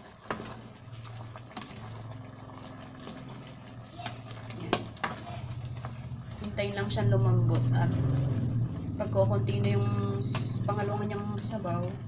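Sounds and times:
liquid bubbling in a pot: 0.0 - 12.0
low steady hum: 0.0 - 12.0
wooden spatula knocking pot: 9.3 - 11.4.

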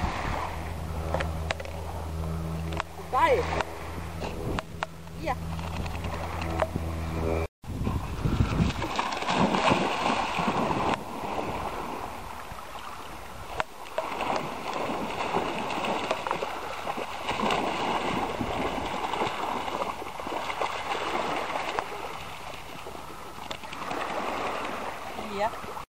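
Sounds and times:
dogs splashing through water: 7.8 - 25.8.

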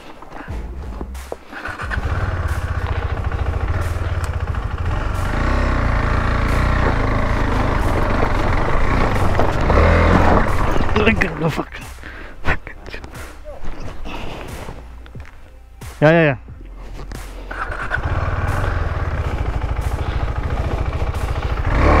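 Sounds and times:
motorcycle engine climbing: 0.2 - 12.0, 16.8 - 22.0.

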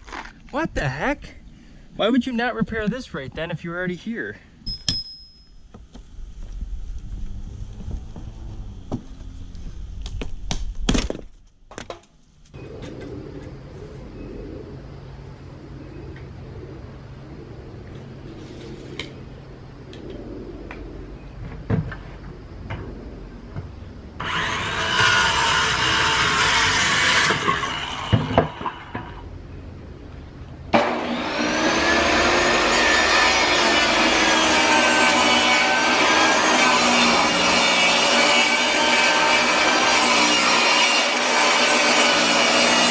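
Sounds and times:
circular saw cutting wood: 24.2 - 29.2, 30.7 - 42.9
table saw motor whining: 24.2 - 29.2, 30.7 - 42.9
metal scraping and creaking: 24.2 - 29.3.

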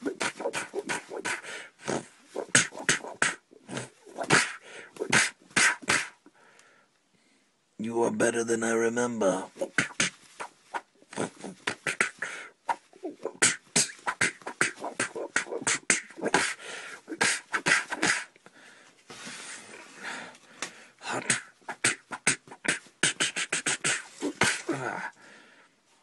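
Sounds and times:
person making mouth sound effects: 0.0 - 6.3, 9.5 - 18.4, 21.0 - 25.1.

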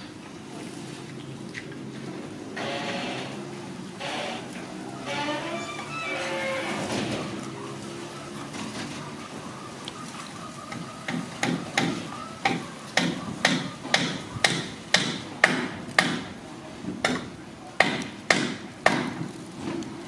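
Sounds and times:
low animal call: 2.6 - 13.9
sharp knocks: 17.0 - 19.3.

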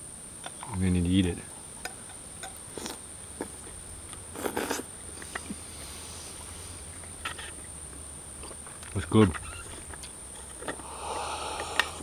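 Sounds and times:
insects trilling: 0.0 - 12.0
scrape or slurp: 4.4 - 6.2.

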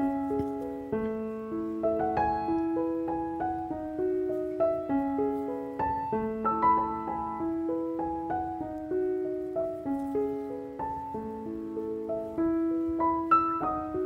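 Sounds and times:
gentle piano melody: 0.0 - 14.0.

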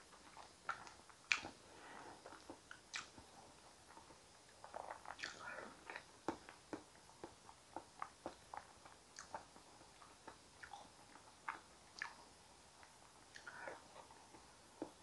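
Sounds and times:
wet mouth smacks and clicks: 0.7 - 1.5, 2.9 - 3.2, 4.6 - 5.5.

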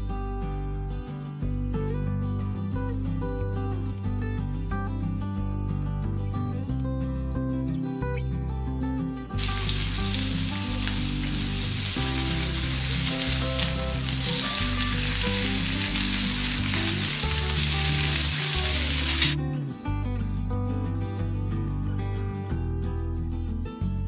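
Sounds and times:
background music: 0.0 - 24.0
chicken sizzling in a pan: 9.4 - 19.4.

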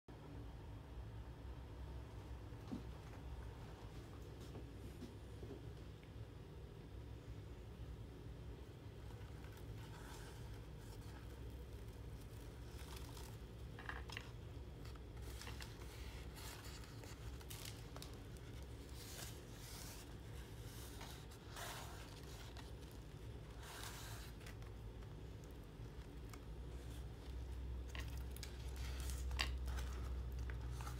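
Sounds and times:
steady low hum: 0.1 - 30.9
paper pages rustling and scraping: 8.9 - 30.9.

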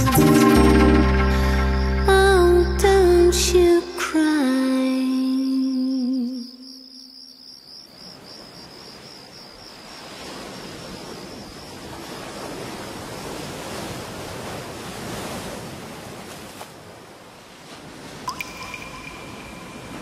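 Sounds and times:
insect trilling: 5.1 - 11.9
small waves washing in: 8.1 - 20.0.

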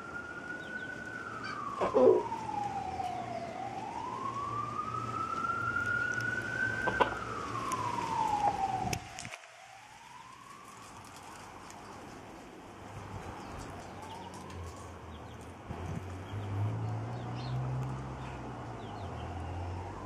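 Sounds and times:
siren wailing: 0.0 - 11.7, 19.2 - 20.0.

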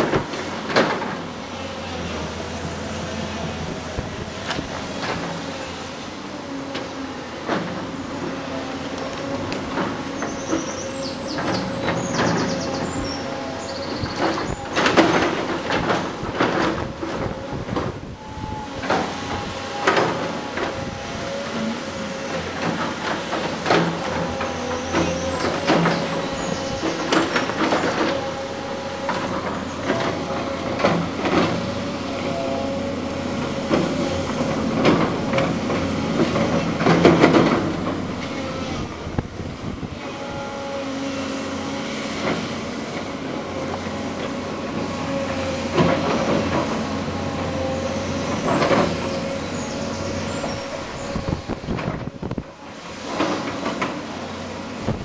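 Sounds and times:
excavator engine whining: 0.0 - 55.0
excavator bucket clanking on rubble: 9.2 - 40.4, 42.2 - 55.0.

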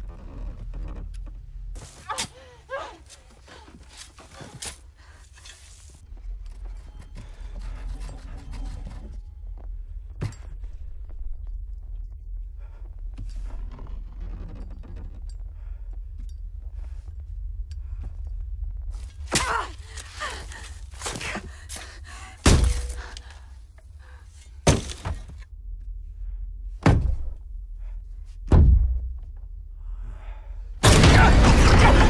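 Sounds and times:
low steady rumble: 9.2 - 32.0
heavy thuds: 28.4 - 29.5.

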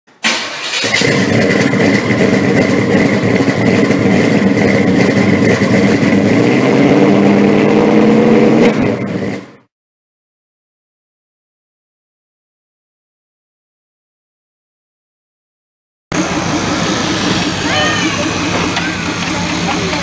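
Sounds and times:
car engine running: 0.8 - 9.7, 16.1 - 20.0
high whine: 16.1 - 20.0.

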